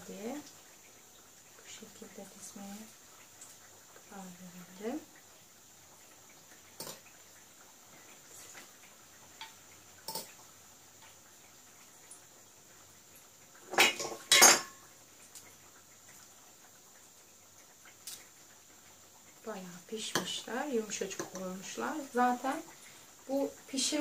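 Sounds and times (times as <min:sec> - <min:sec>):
kitchenware clinking on glass dish: 0:13.7 - 0:14.8.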